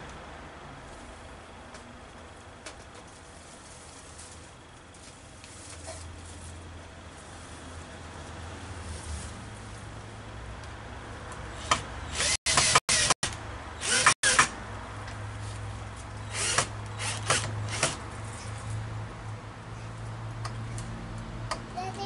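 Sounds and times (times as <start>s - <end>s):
cordless drill driving screws: 11.6s - 13.2s, 13.8s - 14.5s, 16.3s - 18.0s.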